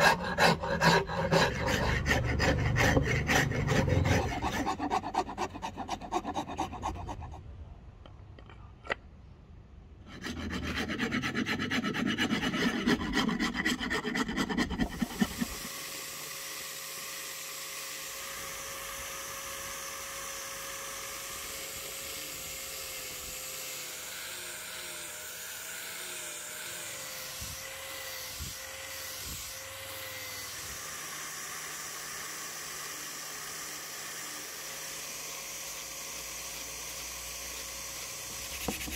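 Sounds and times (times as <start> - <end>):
file scraping wood: 0.0 - 7.4, 10.1 - 15.8, 36.5 - 38.9.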